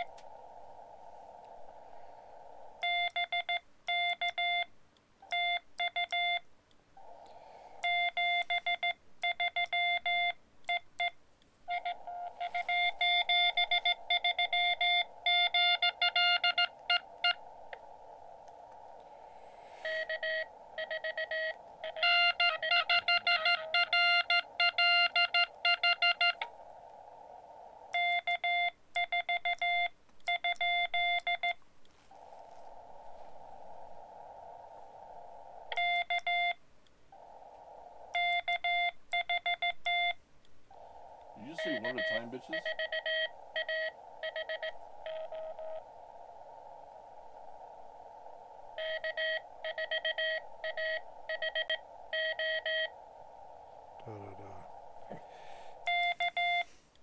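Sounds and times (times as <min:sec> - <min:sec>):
radio receiver hiss: 0:00.0 - 0:57.0
morse code beeps: 0:02.8 - 0:04.7, 0:05.3 - 0:06.4, 0:07.8 - 0:17.4, 0:19.8 - 0:26.5, 0:28.0 - 0:31.6, 0:35.7 - 0:36.6, 0:38.2 - 0:40.2, 0:41.4 - 0:45.8, 0:48.8 - 0:53.0, 0:55.8 - 0:56.7.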